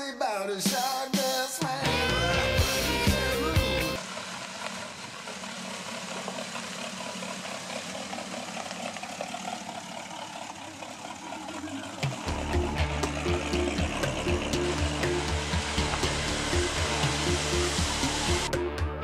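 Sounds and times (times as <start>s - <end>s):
rock song: 0.0s - 4.0s
car engine running at low speed: 2.6s - 19.0s.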